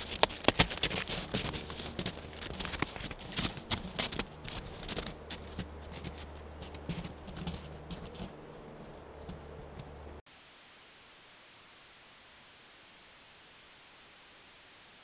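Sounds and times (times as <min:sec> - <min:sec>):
footsteps crunching in snow: 0:00.0 - 0:10.2
steady low hum: 0:00.0 - 0:10.2.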